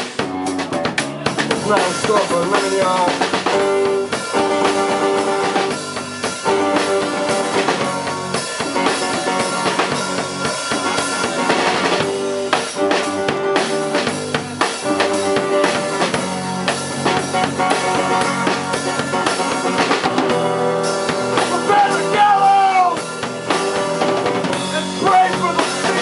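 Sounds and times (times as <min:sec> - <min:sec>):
amplified guitar repeating figure: 0:00.0 - 0:26.0
drum kit: 0:00.0 - 0:26.0
electric bass: 0:00.0 - 0:26.0.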